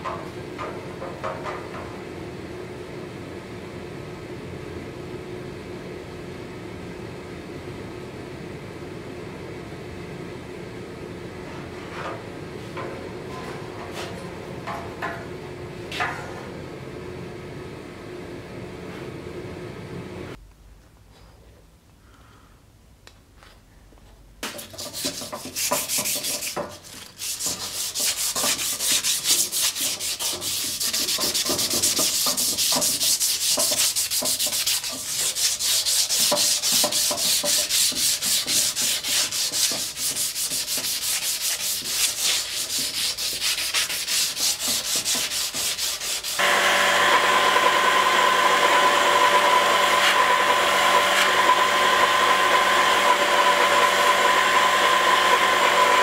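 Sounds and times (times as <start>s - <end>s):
sanding blade with abrasive paper: 24.5s - 47.4s, 48.0s - 56.0s
belt grinder whining: 46.4s - 56.0s.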